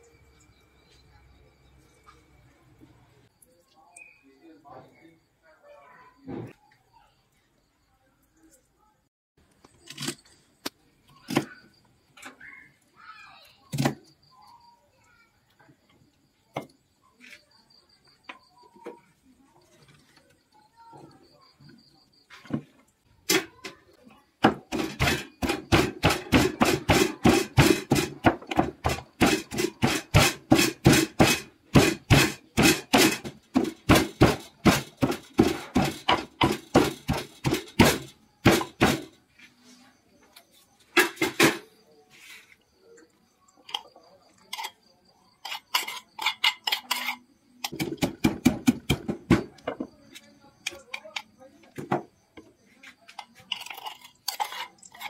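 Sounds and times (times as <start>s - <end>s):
wooden pestle pounding in mortar: 24.4s - 39.1s, 47.7s - 49.6s.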